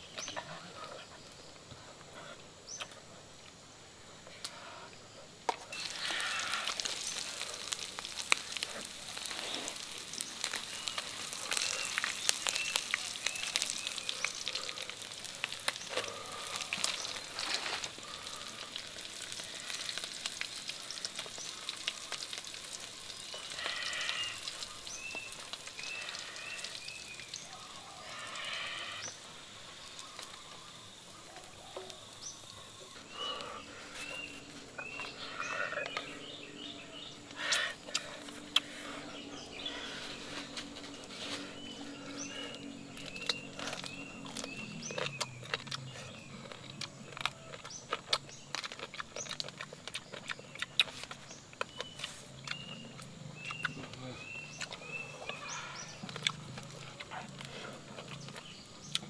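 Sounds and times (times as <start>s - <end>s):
food sizzling in hot oil: 5.7s - 33.2s.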